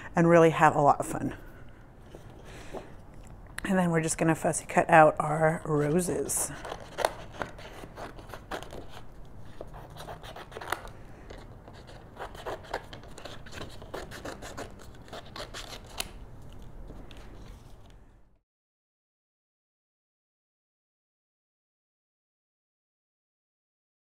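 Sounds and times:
scissors snipping cardstock: 0:05.8 - 0:17.9.

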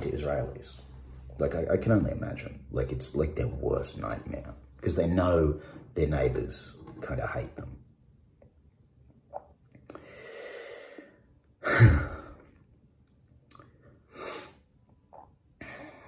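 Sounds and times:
man breathing: 0:09.9 - 0:11.2.

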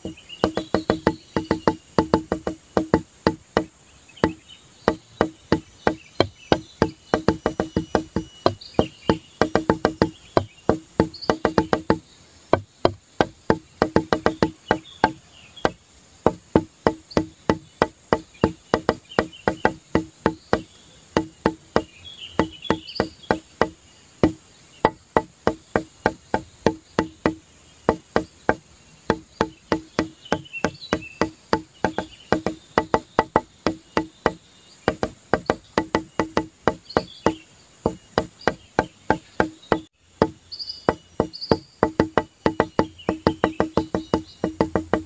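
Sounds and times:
hollow wood-block knocks: 0:00.0 - 0:45.0
faint high chirps: 0:04.2 - 0:12.6.

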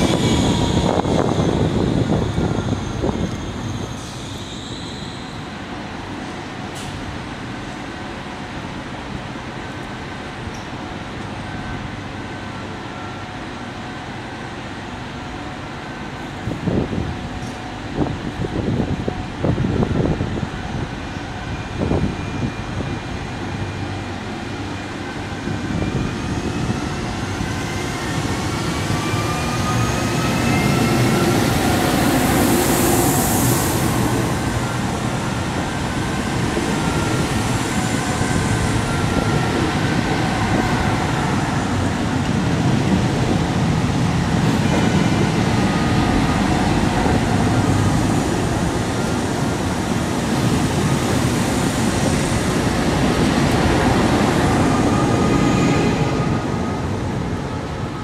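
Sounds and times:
train drive whine: 0:00.0 - 0:58.0
train wheel rumble: 0:13.7 - 0:58.0.

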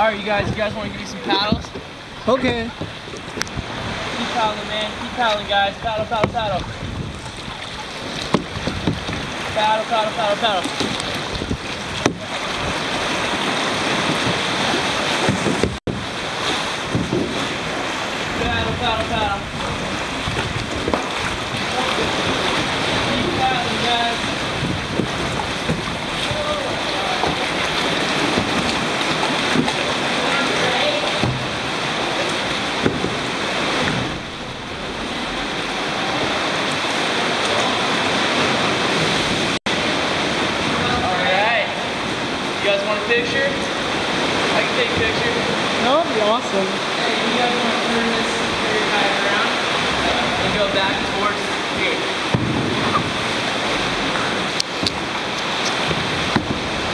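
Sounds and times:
wind buffeting microphone: 0:00.0 - 0:09.8, 0:10.6 - 0:30.2, 0:49.8 - 0:56.9
sea water surging against rocks: 0:00.0 - 0:56.9
kayak paddle strokes splashing: 0:00.2 - 0:56.9.

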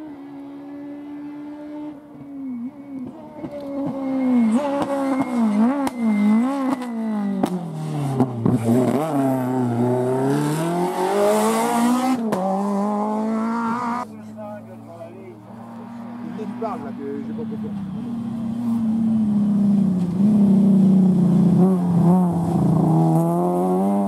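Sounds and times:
rally car engine revving past: 0:03.0 - 0:14.1, 0:17.8 - 0:24.0.

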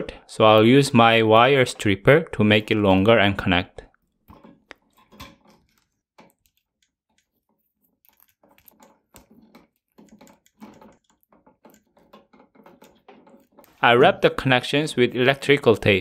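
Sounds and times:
wire nut twisting: 0:04.0 - 0:13.9.

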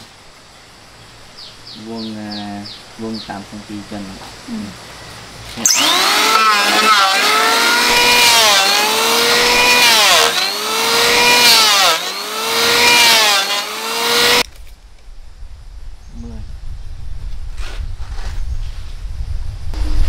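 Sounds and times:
electric hand planer planing wood: 0:05.6 - 0:14.4.

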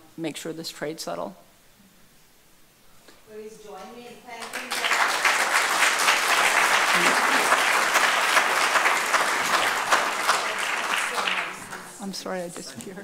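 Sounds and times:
audience applause: 0:04.4 - 0:12.0.

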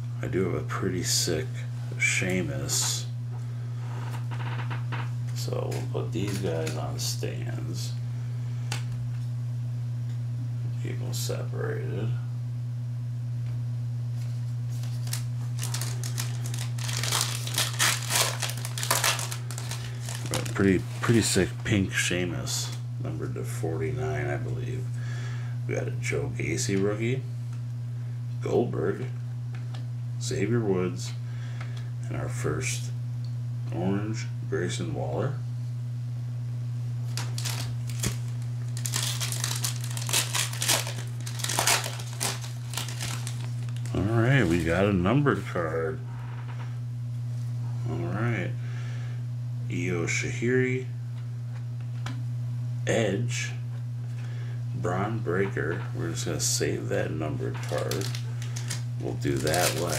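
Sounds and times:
low hum: 0:00.0 - 0:59.9
foil wrapper crinkling: 0:14.2 - 0:21.5, 0:37.1 - 0:44.8, 0:57.5 - 0:59.9.

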